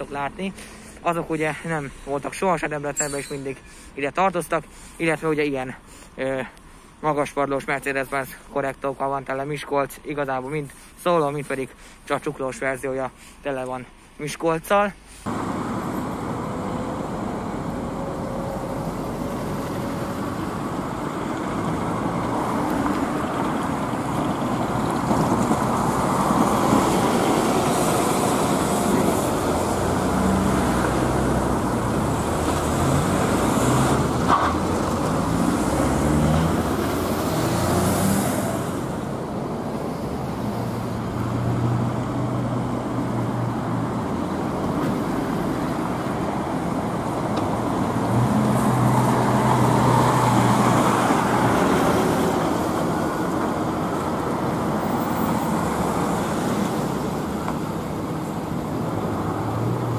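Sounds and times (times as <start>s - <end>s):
buses driving past: 15.0s - 59.9s.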